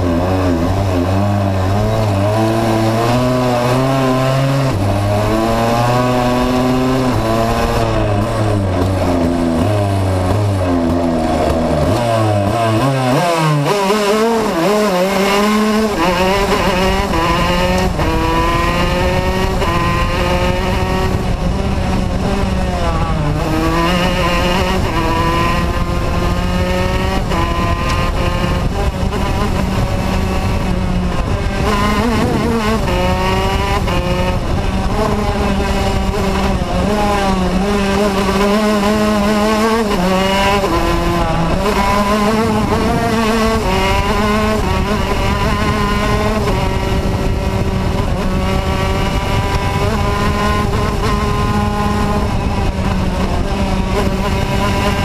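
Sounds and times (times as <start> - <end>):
kart engine revving: 0.0 - 55.0.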